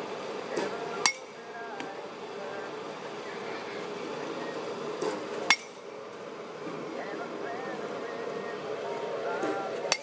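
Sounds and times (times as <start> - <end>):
bat hitting ball: 5.0 - 5.8.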